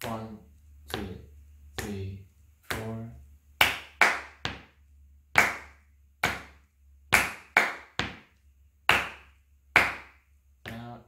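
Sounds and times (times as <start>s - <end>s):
hand claps in rhythm: 2.6s - 3.0s, 3.6s - 10.9s.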